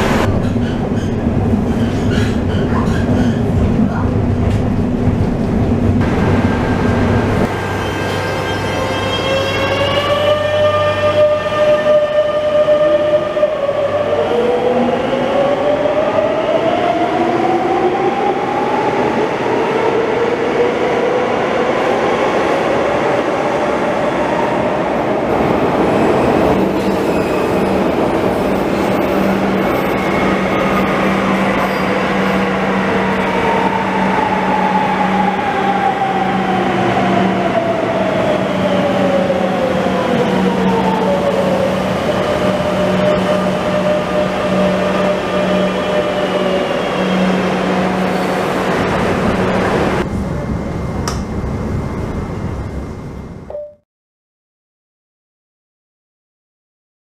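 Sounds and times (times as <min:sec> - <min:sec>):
low train hum: 0:00.0 - 0:53.7.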